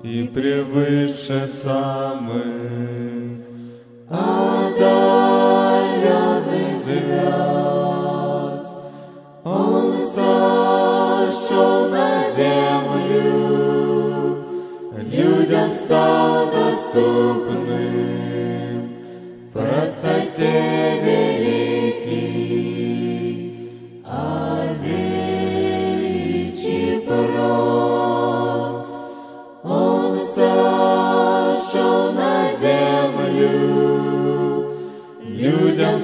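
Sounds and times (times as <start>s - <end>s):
choir singing: 0.0s - 36.0s.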